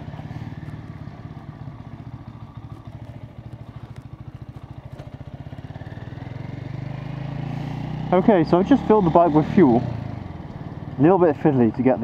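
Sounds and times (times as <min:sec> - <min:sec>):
motorcycle engine running at low revs: 0:00.0 - 0:12.0.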